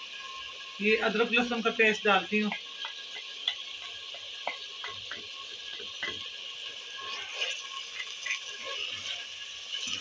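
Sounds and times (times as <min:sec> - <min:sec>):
oil sizzling: 0:00.0 - 0:10.0
spatula stirring in pot: 0:01.4 - 0:10.0
spoon tapping and scraping plate: 0:02.5 - 0:06.3.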